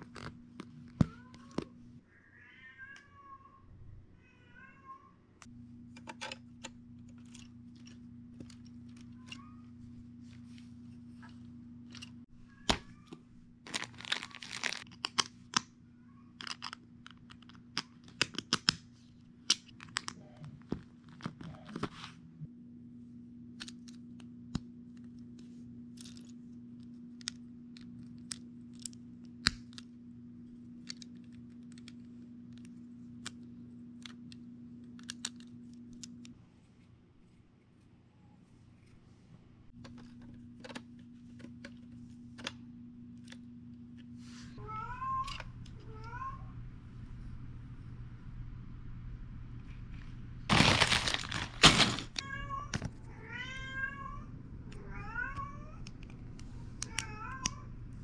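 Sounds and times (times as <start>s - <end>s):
cat meowing: 2.1s - 5.2s
steady low hum: 5.0s - 13.8s, 14.7s - 58.0s
rummaging and rustling: 13.6s - 14.9s, 50.5s - 52.3s.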